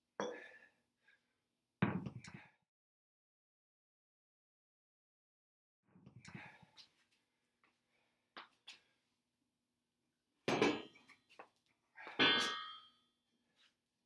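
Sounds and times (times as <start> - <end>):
metallic clangs of weight plates: 12.1 - 13.0.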